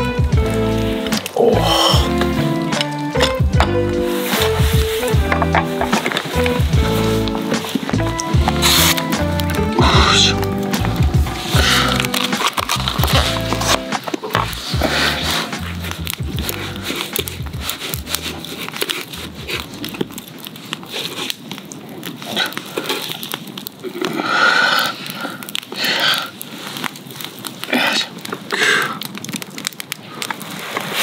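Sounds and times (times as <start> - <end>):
background music: 0.0 - 20.1
campfire crackling and popping: 0.0 - 31.0
rustling crunching bursts: 0.0 - 31.0.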